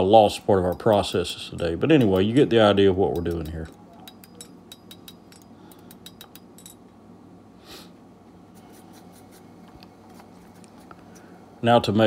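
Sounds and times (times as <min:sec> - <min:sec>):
low steady hum: 0:00.0 - 0:12.0
light metal clicks and clinks: 0:02.0 - 0:07.0.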